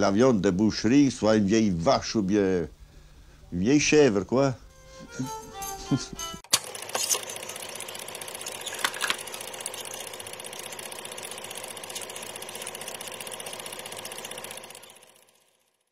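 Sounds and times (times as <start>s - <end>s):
fast mechanical rattle: 6.5s - 15.9s.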